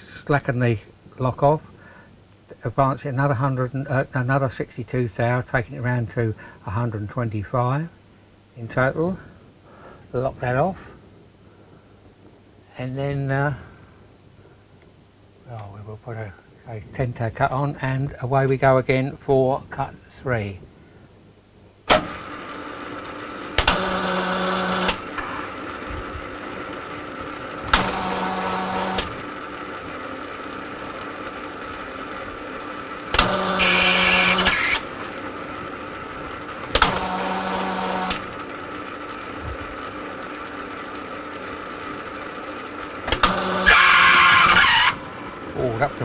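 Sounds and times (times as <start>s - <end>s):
lathe tool cutting thread: 21.9s - 35.8s, 36.4s - 39.2s, 42.6s - 46.0s
metal lathe running: 21.9s - 46.0s.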